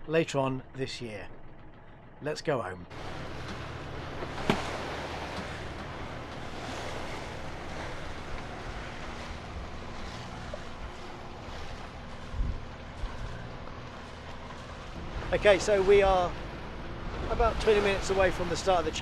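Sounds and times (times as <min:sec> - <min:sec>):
water washing along a hull: 0:02.9 - 0:19.0.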